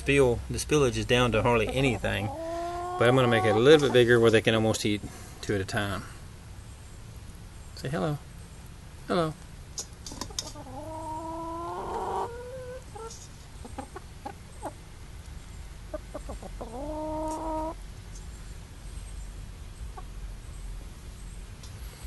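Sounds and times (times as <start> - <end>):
chicken clucks: 1.5 - 4.2, 10.1 - 14.8, 15.9 - 17.8
chicken long drawn-out calls: 1.8 - 4.2, 10.5 - 13.2, 15.9 - 17.8.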